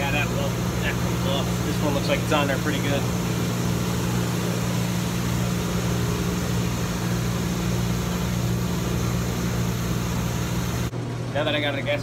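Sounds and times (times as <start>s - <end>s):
air conditioning machinery hum: 0.0s - 12.0s.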